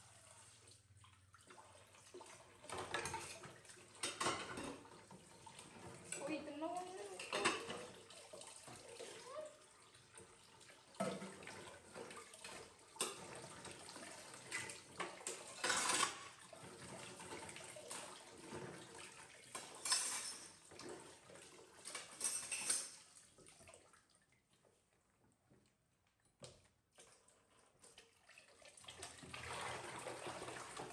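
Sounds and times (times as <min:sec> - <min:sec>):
running tap water: 0:00.0 - 0:23.8, 0:27.4 - 0:30.9
dishes clattering in steel sink: 0:02.6 - 0:06.4, 0:07.1 - 0:08.1, 0:11.0 - 0:17.4, 0:19.5 - 0:21.1, 0:21.8 - 0:23.1.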